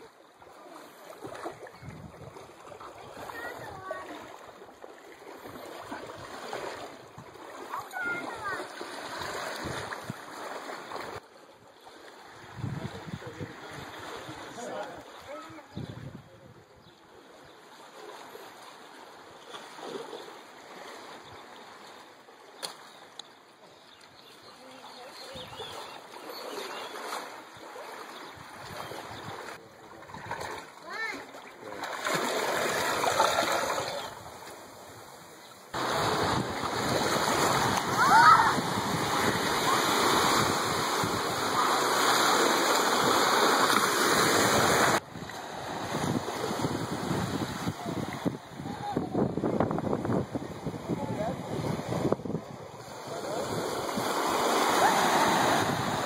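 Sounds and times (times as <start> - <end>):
small waves washing on sand: 0.0 - 16.2, 17.0 - 23.2, 24.3 - 56.0
sea water lapping on rocks: 0.4 - 11.2, 25.0 - 56.0.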